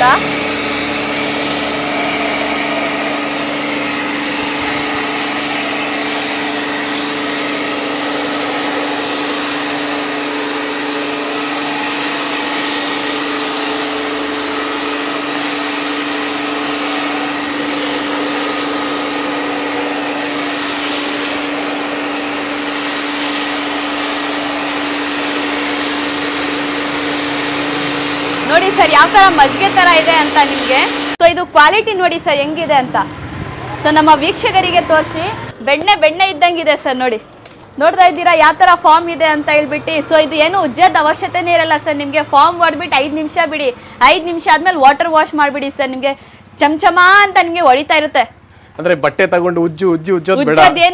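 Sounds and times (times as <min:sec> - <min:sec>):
pressure washer motor humming: 0:00.0 - 0:31.2
spray hissing: 0:11.4 - 0:14.6, 0:15.2 - 0:31.2.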